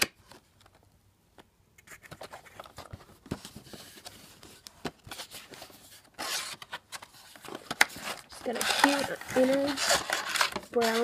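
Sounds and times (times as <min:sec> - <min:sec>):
cardboard box rubbing and scraping: 0:08.0 - 0:11.0.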